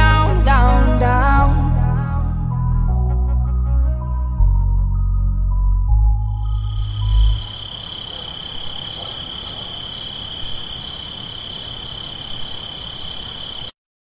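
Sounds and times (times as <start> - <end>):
high-pitched cricket-like trill: 6.2 - 13.8.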